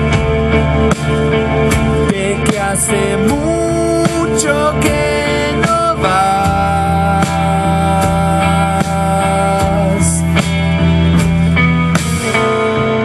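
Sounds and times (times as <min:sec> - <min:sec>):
rock band playing: 0:00.0 - 0:13.0
man singing long held notes: 0:02.1 - 0:10.4.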